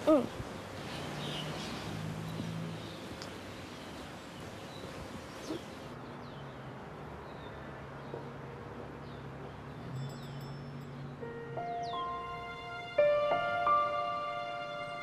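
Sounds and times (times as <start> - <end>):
birds chirping: 0.0 - 8.3, 9.0 - 12.7.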